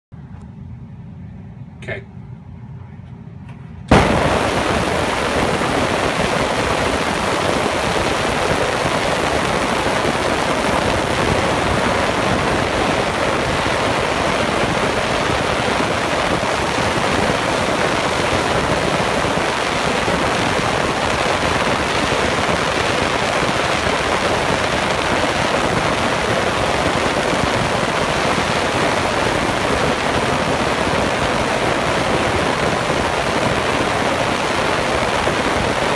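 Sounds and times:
ultrasonic cleaner hissing: 3.9s - 35.9s.

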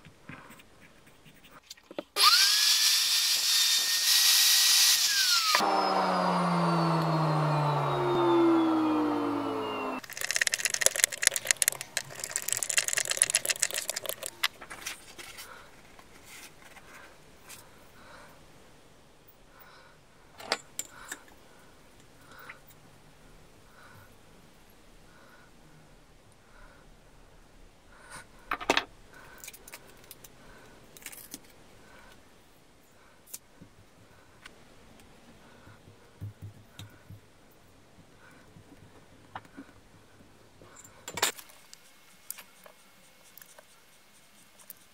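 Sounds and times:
screwdriver clicking: 10.0s - 14.5s
faint paper rustling: 10.0s - 17.8s.

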